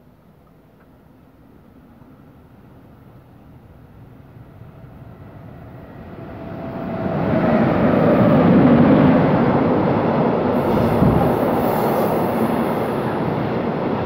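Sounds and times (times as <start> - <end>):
train passing: 1.1 - 14.0
wheels rushing on rails: 4.5 - 14.0.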